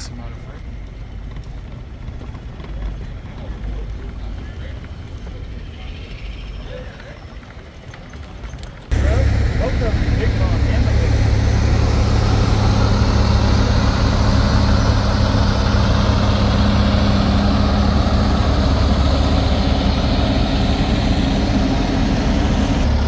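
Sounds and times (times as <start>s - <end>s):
engine running with low hum: 0.0s - 23.0s
steady tone: 8.9s - 23.0s.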